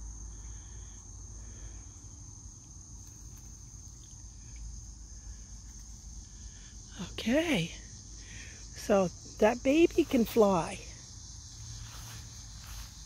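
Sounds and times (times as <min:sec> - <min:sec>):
insects trilling: 0:00.0 - 0:13.0.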